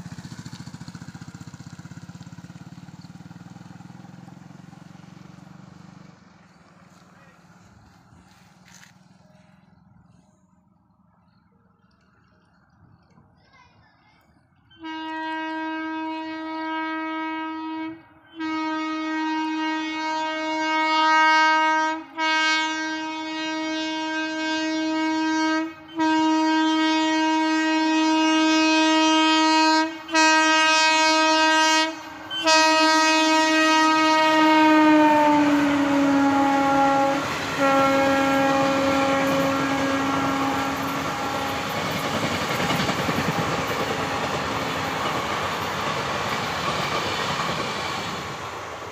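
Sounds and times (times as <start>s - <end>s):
train horn blasts: 14.7s - 42.2s
train coaches clattering on rails: 38.3s - 48.9s.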